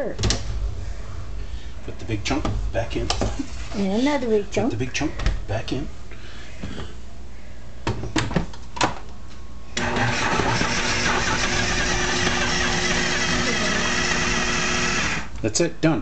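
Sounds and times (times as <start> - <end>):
food processor motor running: 9.8 - 15.3.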